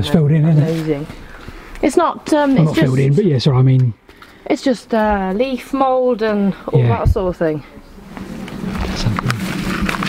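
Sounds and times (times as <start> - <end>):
footsteps: 8.0 - 10.0.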